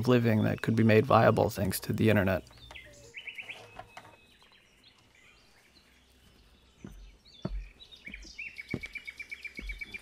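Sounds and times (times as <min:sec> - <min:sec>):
birds chirping: 0:00.0 - 0:10.0
bird trilling: 0:01.2 - 0:04.5
footsteps on grass: 0:05.4 - 0:10.0.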